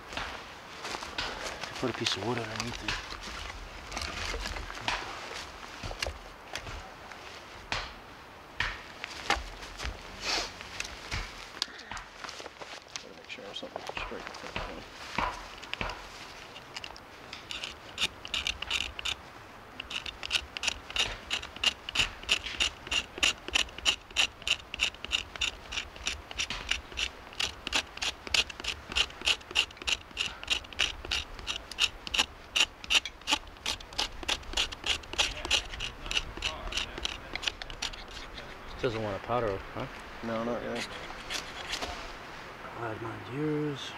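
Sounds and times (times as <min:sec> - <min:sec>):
hand saw cutting wood: 0:16.8 - 0:19.2, 0:19.8 - 0:38.5, 0:40.6 - 0:41.9.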